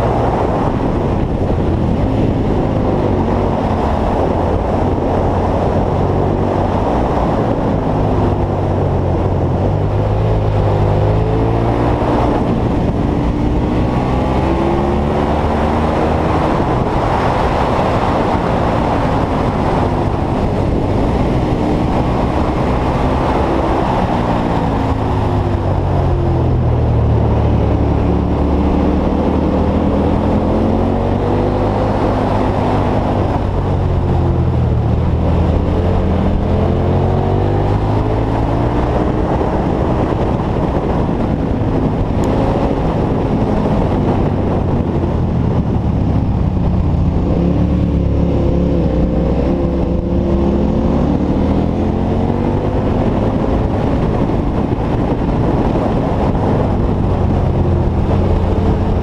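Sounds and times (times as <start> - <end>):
motorcycle engine revving: 0.0 - 59.0
wind rushing: 0.0 - 59.0.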